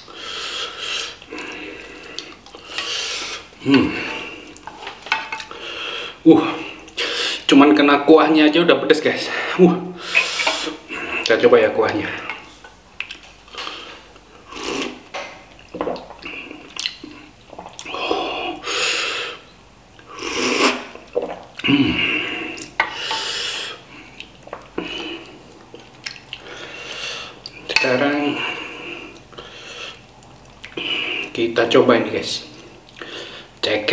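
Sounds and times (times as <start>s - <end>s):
ladle scraping metal pan: 10.0s - 10.8s.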